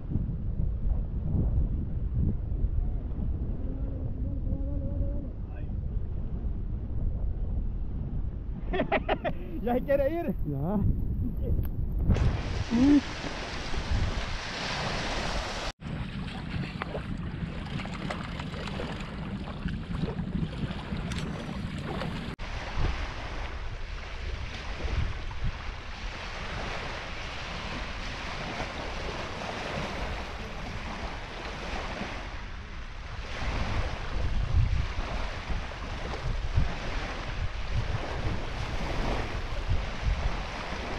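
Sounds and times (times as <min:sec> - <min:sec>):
wind rumbling on microphone: 0:00.0 - 0:40.9
lake waves washing onto shore: 0:12.0 - 0:40.9.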